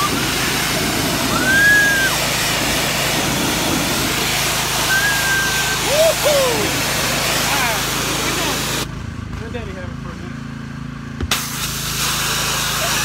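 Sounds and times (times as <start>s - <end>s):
high drawn-out rising tones: 0.0s - 8.9s
water spraying on boat hull: 0.0s - 8.9s, 11.3s - 13.0s
pressure washer engine running: 0.0s - 13.0s.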